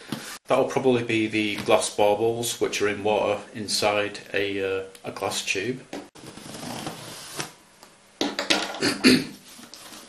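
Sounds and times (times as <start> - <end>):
knocks and clatters on table: 8.2 - 8.8
rustle on tabletop: 9.4 - 10.0.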